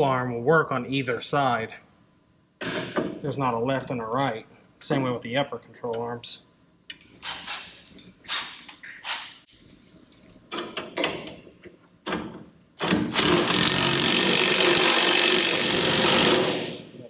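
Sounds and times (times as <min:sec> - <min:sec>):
power tool fastening bolt: 0:07.2 - 0:09.4, 0:12.8 - 0:16.7.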